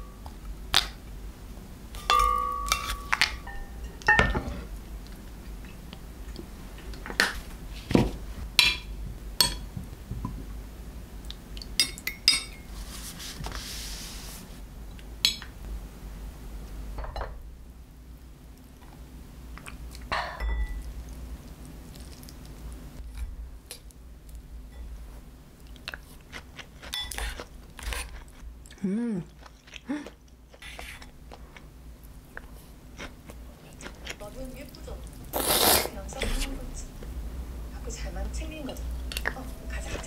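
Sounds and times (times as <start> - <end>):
tableware clinking: 2.0 - 4.7, 11.8 - 12.7, 20.1 - 20.8.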